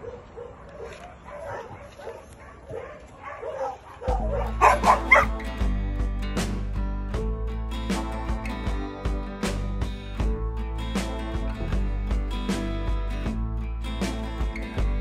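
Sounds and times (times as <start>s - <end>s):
background music: 4.0s - 15.0s.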